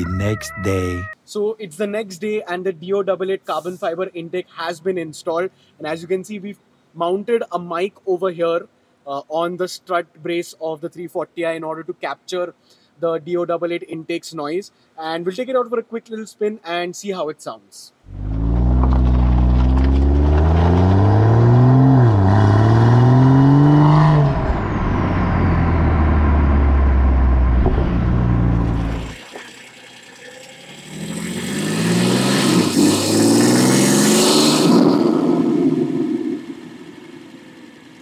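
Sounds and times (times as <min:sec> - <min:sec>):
car engine accelerating hard: 0:18.1 - 0:29.2, 0:30.8 - 0:37.9.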